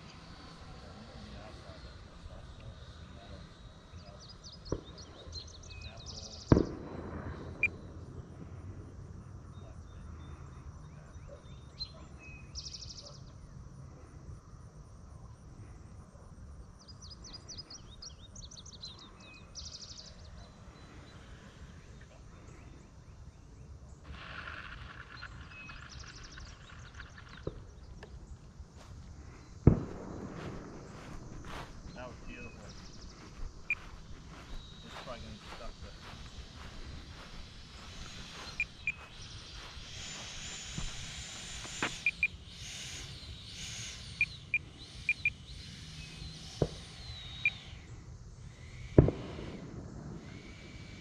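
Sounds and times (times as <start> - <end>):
high chirping: 31.0 - 47.8.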